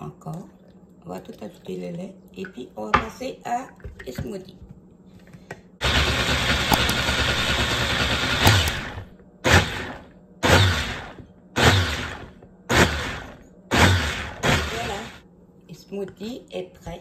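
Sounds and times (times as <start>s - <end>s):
blender blending: 5.8s - 15.2s.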